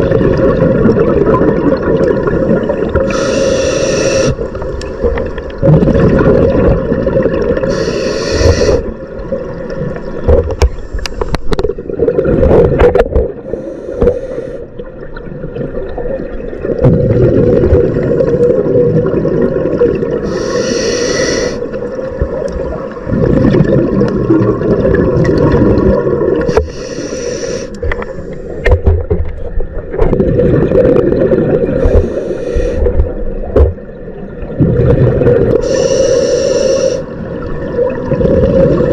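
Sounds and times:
burbling exhaled bubbles: 0.0s - 9.0s, 11.5s - 13.6s, 15.3s - 26.8s, 29.8s - 32.2s, 34.4s - 38.9s
regulator hissing inhalations: 3.0s - 4.5s, 7.7s - 8.9s, 13.5s - 14.6s, 20.2s - 21.7s, 26.5s - 28.6s, 31.8s - 32.9s, 35.6s - 37.1s.

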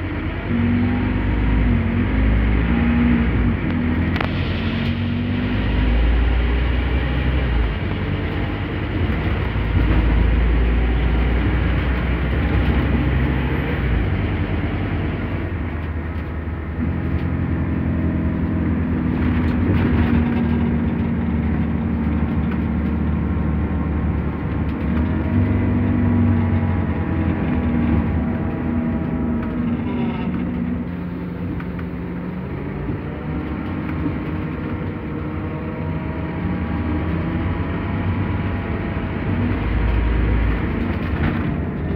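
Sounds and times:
bus diesel engine: 0.0s - 41.9s.

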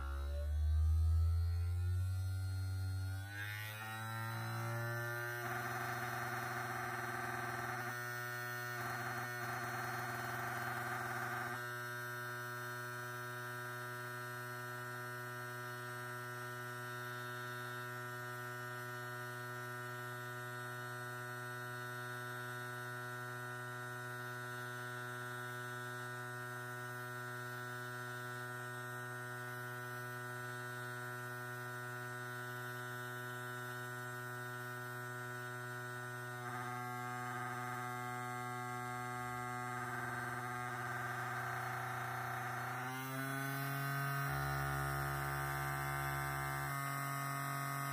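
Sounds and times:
electric motor humming: 0.0s - 13.7s, 27.2s - 47.9s.

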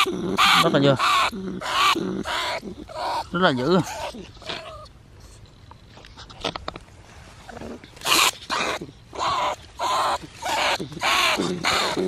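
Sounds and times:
harsh loud animal calls: 0.0s - 4.9s, 7.5s - 12.0s.

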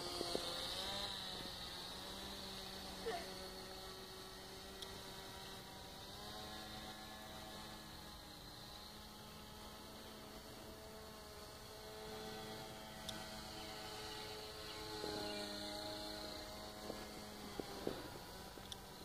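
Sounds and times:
rc aircraft motor droning: 0.0s - 19.0s.

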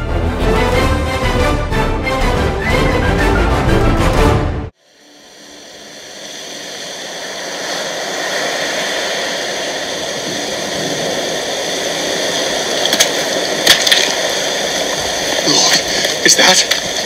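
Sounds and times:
sea surf: 4.7s - 17.0s
wind: 4.7s - 17.0s.

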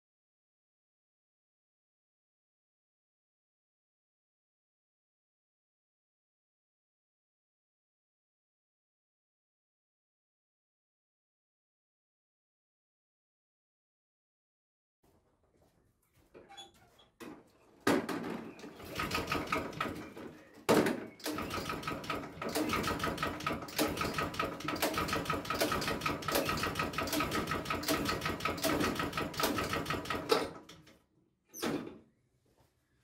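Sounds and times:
lawn mower engine rattling: 17.9s - 30.9s.

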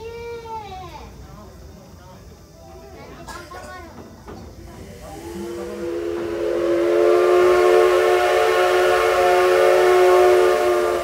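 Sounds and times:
steam locomotive whistle blast: 4.8s - 11.0s.

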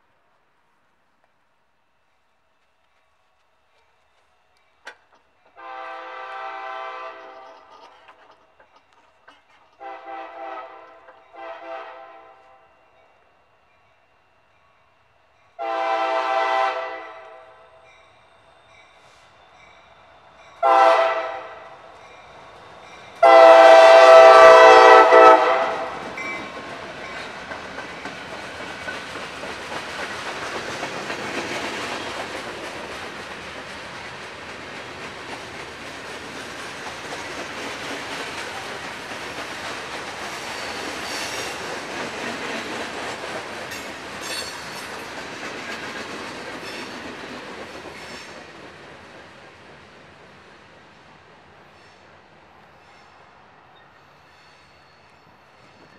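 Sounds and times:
freight train rolling by: 0.0s - 55.9s
locomotive air horn blasts: 5.6s - 7.4s, 9.8s - 12.7s, 15.6s - 17.7s, 20.6s - 21.8s, 23.2s - 26.0s
wheels clacking over rail joints: 25.7s - 50.3s.

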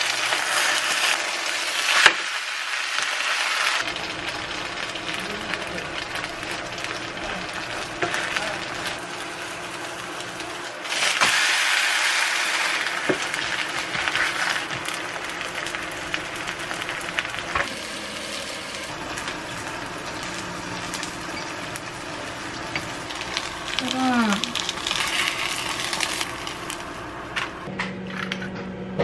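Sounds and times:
pancake sizzling in oil: 0.0s - 26.9s.

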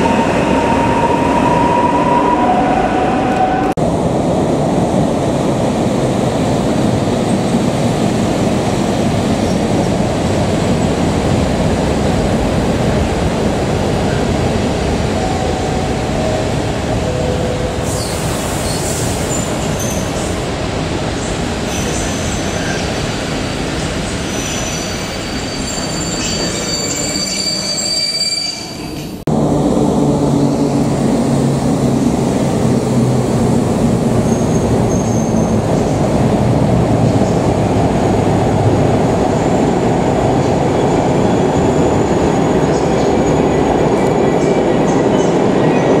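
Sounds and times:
high-pitched wheel squeals: 24.4s - 29.1s, 34.2s - 35.6s.

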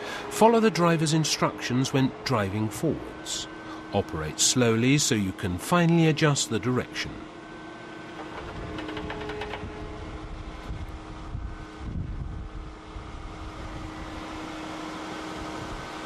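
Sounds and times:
excavator diesel engine humming: 0.0s - 11.8s.

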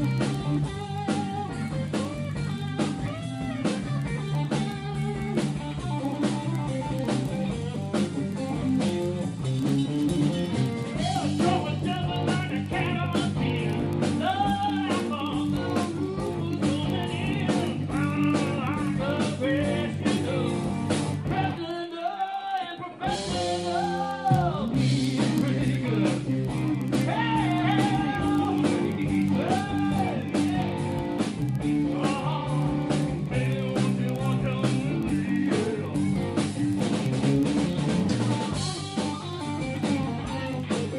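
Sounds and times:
live rock band playing: 0.0s - 22.0s, 22.8s - 40.9s
person singing: 11.0s - 36.3s, 38.6s - 40.9s.

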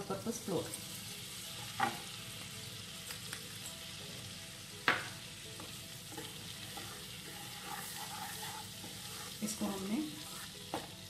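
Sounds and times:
butter and flour sizzling in pan: 0.0s - 11.0s
wooden spatula stirring: 6.1s - 10.9s.

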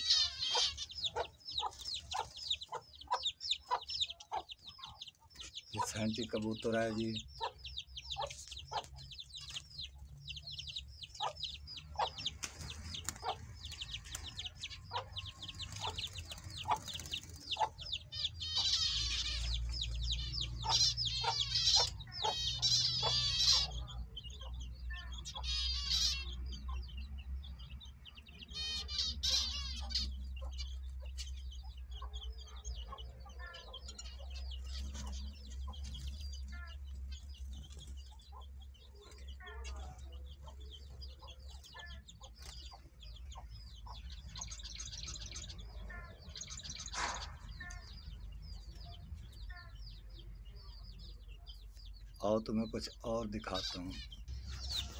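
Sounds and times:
fowl calling: 0.0s - 4.2s
finches chirping: 0.0s - 54.9s
rapid twittering birdsong: 0.0s - 54.9s.

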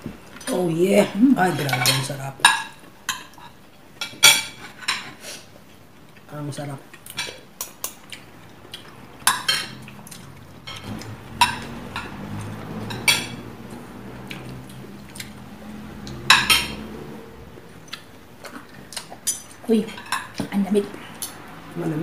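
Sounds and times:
cutlery clinking on plates: 1.5s - 5.2s, 9.2s - 13.5s, 16.1s - 17.0s.

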